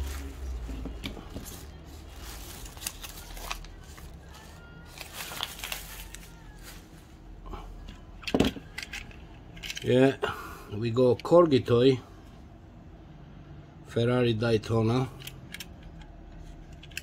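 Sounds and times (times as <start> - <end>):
toy cars clicking and tapping: 15.0 - 17.0.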